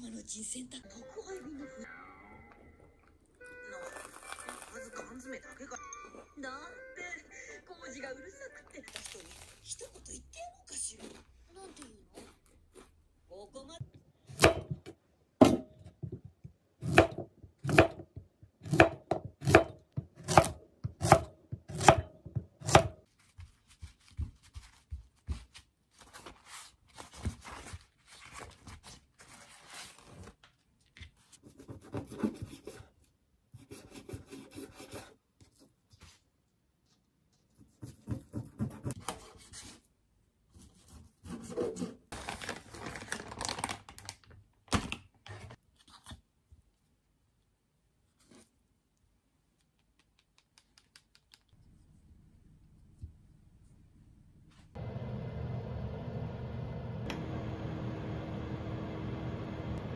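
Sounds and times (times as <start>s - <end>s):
packaging rustle: 3.8s - 5.0s, 42.1s - 44.4s
knife chopping on wooden board: 14.3s - 16.2s, 16.8s - 23.0s
paper towel rustling: 23.1s - 30.6s.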